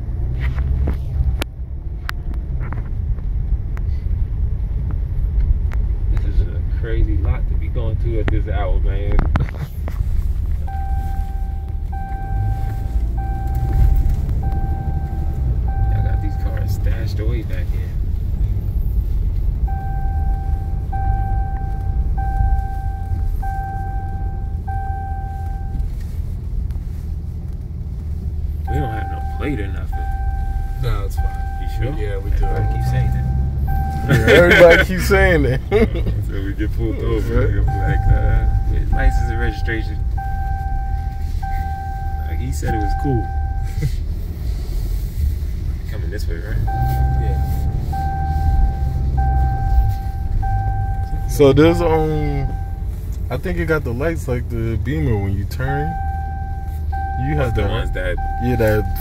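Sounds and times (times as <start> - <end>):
diesel pickup engine rumble: 0.0 - 59.0
electronic warning chime: 10.7 - 16.9, 19.7 - 25.8, 28.7 - 35.0, 37.6 - 43.7, 46.7 - 52.9, 55.8 - 59.0.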